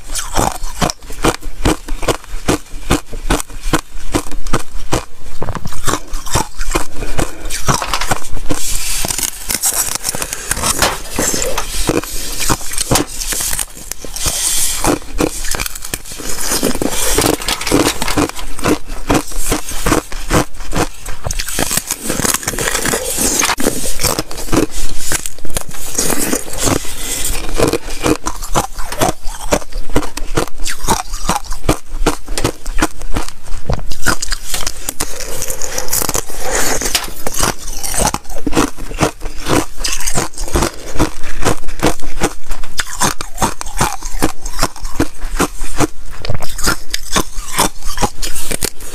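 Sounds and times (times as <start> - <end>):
thin ice cracking and crunching: 5.7 - 31.8, 34.0 - 41.1.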